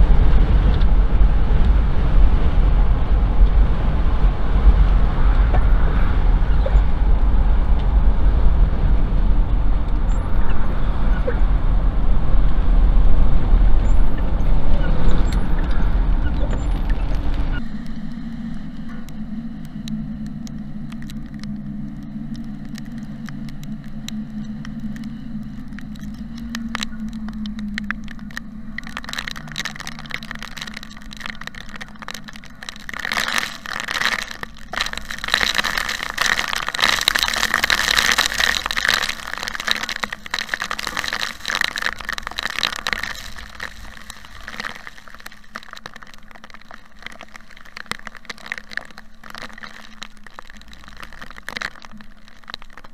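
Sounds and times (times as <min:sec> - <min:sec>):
car engine and tyre hum: 0:00.0 - 0:32.5
rain on car roof: 0:00.0 - 0:52.9.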